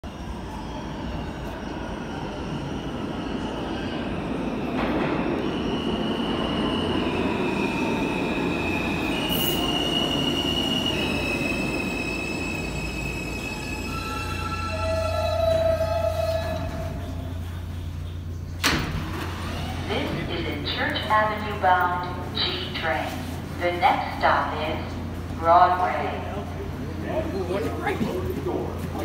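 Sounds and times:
subway train rumble: 0.0 - 29.0
high brake squeal: 9.1 - 17.4.

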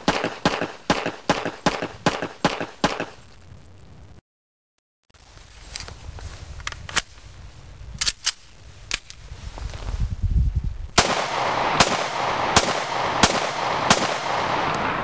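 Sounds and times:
pistol shots: 0.0 - 3.2, 11.0 - 15.0.

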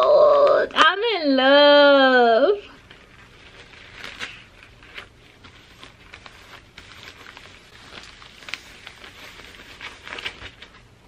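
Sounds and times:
plastic envelope rustling: 2.7 - 11.0.

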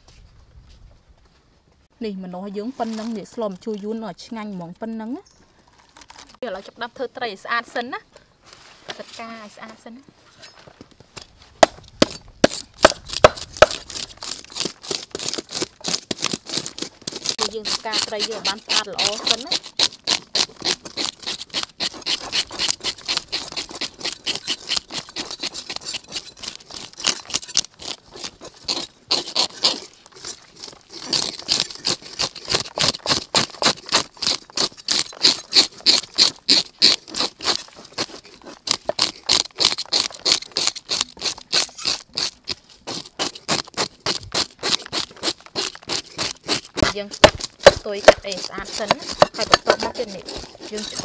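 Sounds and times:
fish scaler scraping scales: 12.0 - 51.0.

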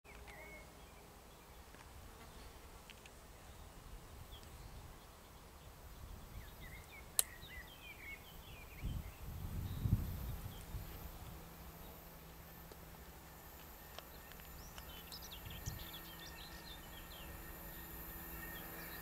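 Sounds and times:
low buzz: 0.1 - 19.0
small birds chirping: 3.3 - 12.8, 13.5 - 19.0
sharp click: 7.2 - 7.4.

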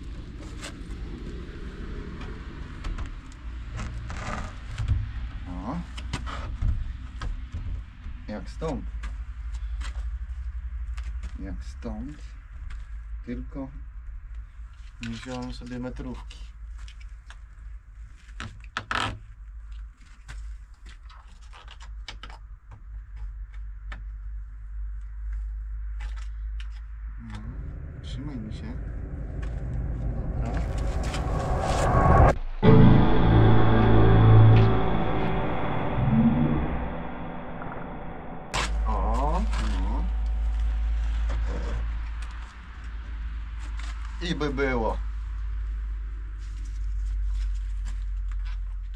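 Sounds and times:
low rumble: 26.9 - 44.2
scrape: 30.3 - 37.2
background music: 32.6 - 40.2.

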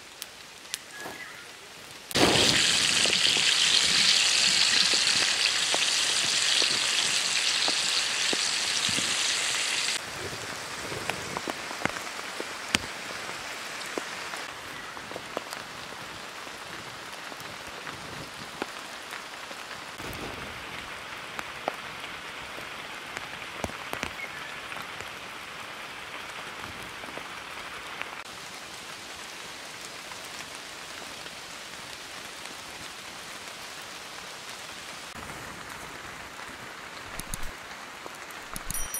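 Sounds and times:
meat sizzling in hot oil: 2.1 - 10.0
oil popping and crackling: 2.1 - 14.2, 37.1 - 38.7.

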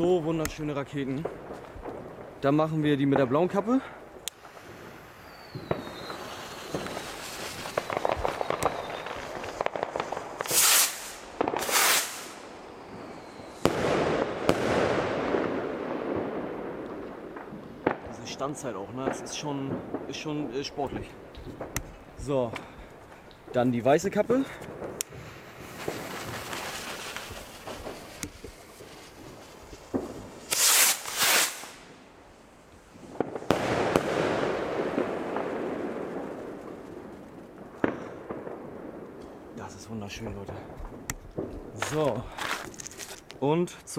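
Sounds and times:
fuse crackling: 0.0 - 15.9, 16.5 - 38.1
rockets whooshing: 0.0 - 43.3
crackling hiss of burning stars: 0.0 - 43.9
firework rocket rushing hiss: 4.3 - 15.0, 25.0 - 34.4
firework sharp bangs: 4.3 - 23.5, 24.5 - 32.2, 33.0 - 39.4, 40.2 - 42.6.

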